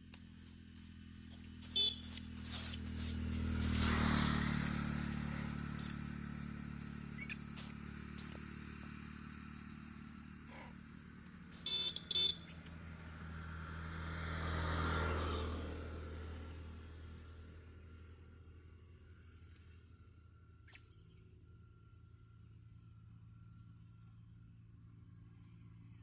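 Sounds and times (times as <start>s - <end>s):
vehicle engine drone passing: 0.0s - 26.0s
short high chirps: 1.3s - 3.8s.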